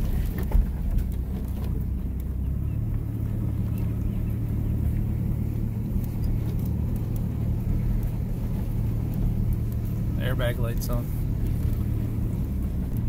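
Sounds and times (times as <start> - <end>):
car driving on gravel: 0.0 - 13.0
faint ticks: 1.0 - 13.0.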